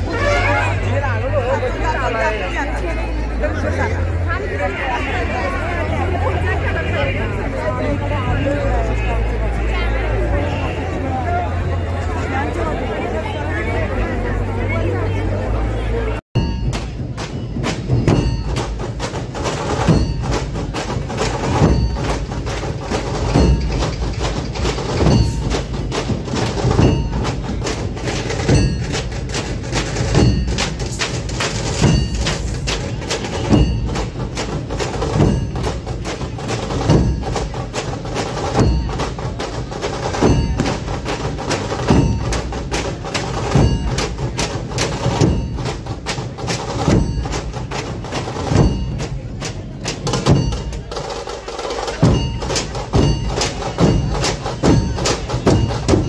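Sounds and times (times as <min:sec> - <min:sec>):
barrel drums beating in unison: 0:16.4 - 0:56.0.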